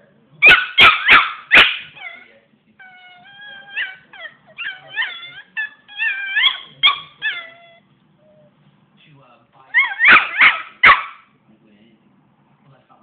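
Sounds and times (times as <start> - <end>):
puppy yapping: 0.4 - 8.4, 9.7 - 11.3
puppy whimpering: 1.0 - 8.5, 9.7 - 10.7.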